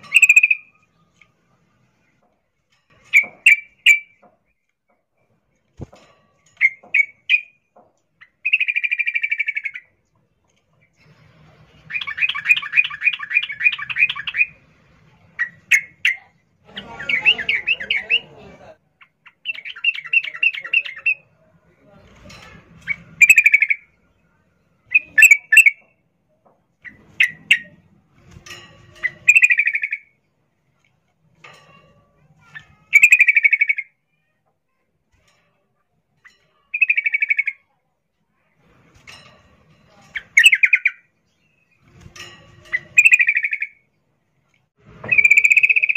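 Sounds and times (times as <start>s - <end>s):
bird chattering call: 32.9s - 33.9s, 36.7s - 37.6s, 42.7s - 43.8s, 45.1s - 45.9s.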